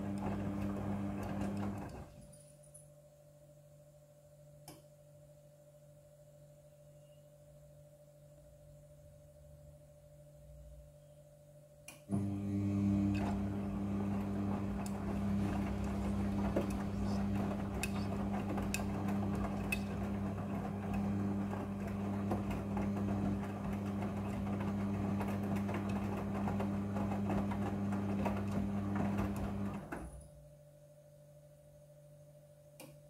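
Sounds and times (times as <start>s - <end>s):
washing machine drum turning: 0.0s - 2.0s, 12.1s - 30.2s.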